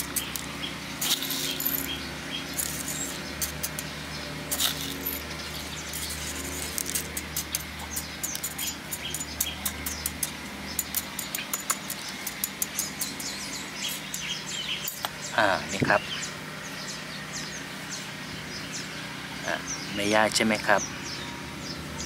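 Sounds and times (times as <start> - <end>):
metal spoon scraping pebbles: 1.0 - 3.9, 4.5 - 10.2.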